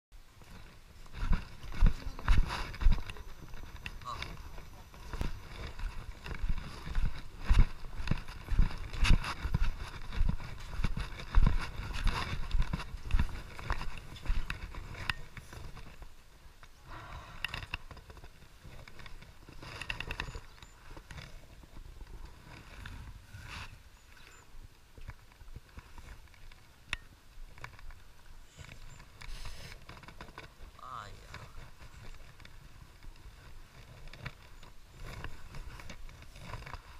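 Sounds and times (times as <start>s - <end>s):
footsteps on hollow wooden planks: 0.4s - 16.8s.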